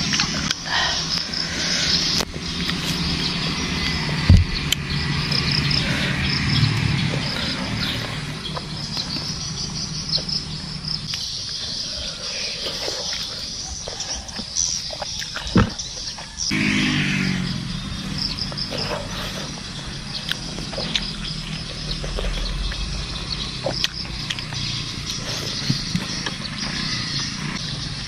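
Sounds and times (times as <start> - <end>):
low hum: 0.0 - 11.2, 16.5 - 28.0
insects chirping: 0.0 - 28.0
fruit torn and bitten: 20.2 - 24.7.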